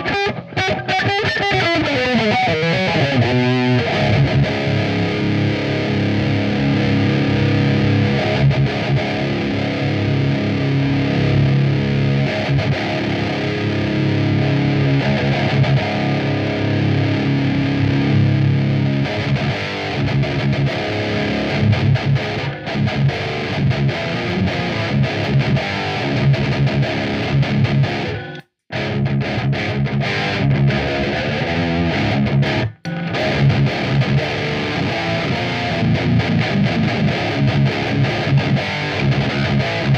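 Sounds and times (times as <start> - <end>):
distorted electric guitar: 0.0 - 39.9.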